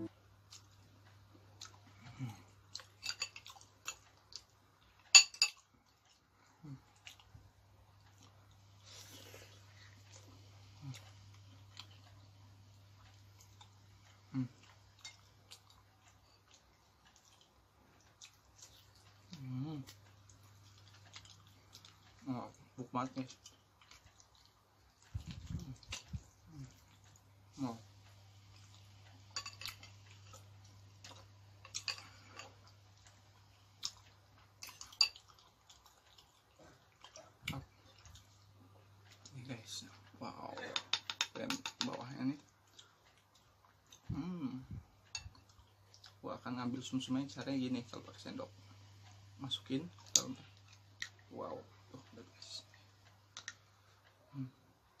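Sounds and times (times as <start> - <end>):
low electrical hum: 0.0 - 55.0
soft chewing and lip smacks: 0.0 - 55.0
man humming mm: 14.3 - 14.6, 44.1 - 44.8.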